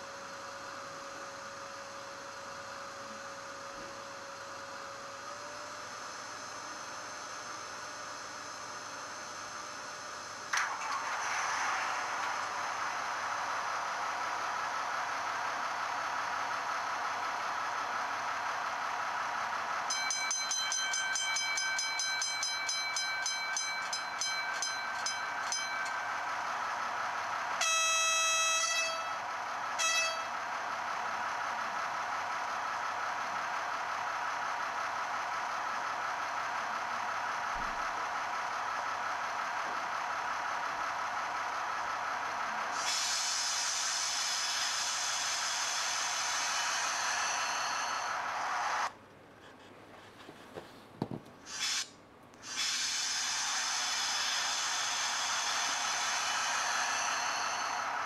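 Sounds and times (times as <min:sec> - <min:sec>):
model locomotive diesel idle: 0:00.0 - 0:49.8, 0:51.3 - 0:58.0
bell ringing: 0:19.9 - 0:26.2
locomotive horn blast: 0:27.6 - 0:29.2, 0:29.8 - 0:30.4.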